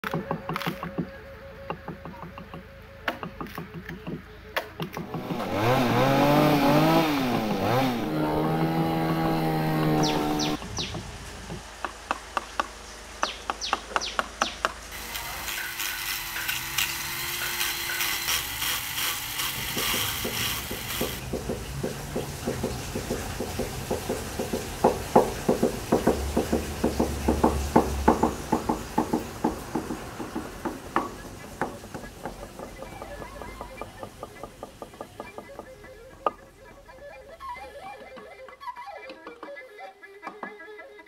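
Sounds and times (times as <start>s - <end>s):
mallet striking chisel into wood: 19.7s - 36.4s.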